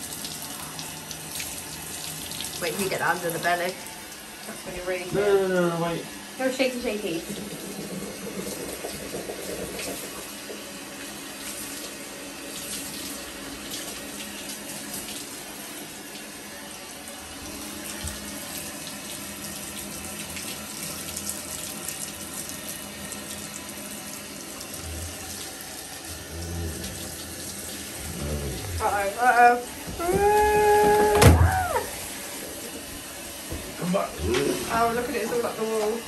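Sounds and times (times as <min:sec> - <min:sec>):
shower head spraying water: 0:00.0 - 0:16.4, 0:17.4 - 0:36.0.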